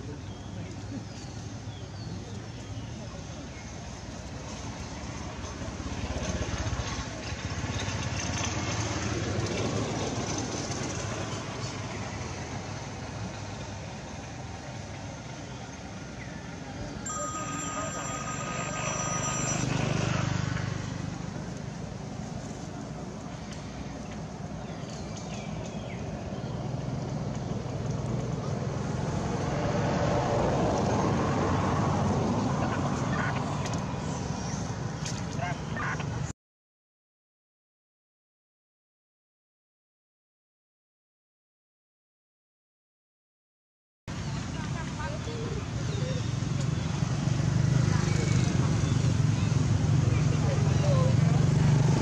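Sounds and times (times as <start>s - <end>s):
vehicle passing by: 2.5s - 36.3s, 44.1s - 52.0s.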